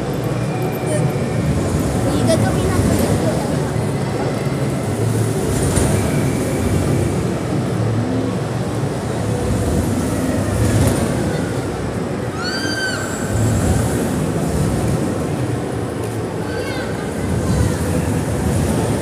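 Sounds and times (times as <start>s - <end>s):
roller coaster rumbling on track: 0.0s - 19.0s.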